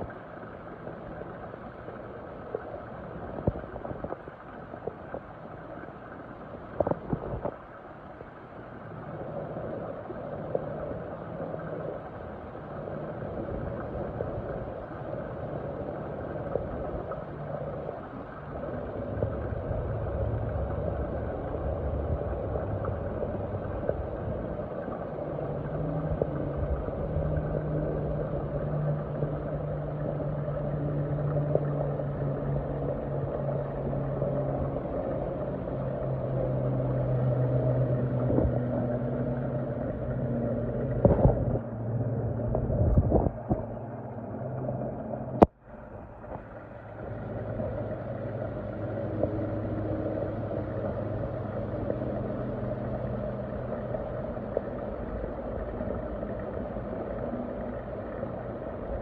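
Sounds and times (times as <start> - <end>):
low steady hum: 0.0 - 59.0
muffled water gurgling and rushing: 0.0 - 59.0.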